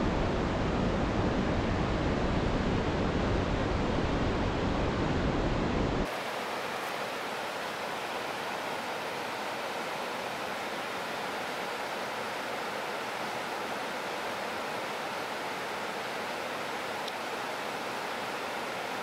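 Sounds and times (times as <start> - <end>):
river water roaring: 6.0 - 19.0.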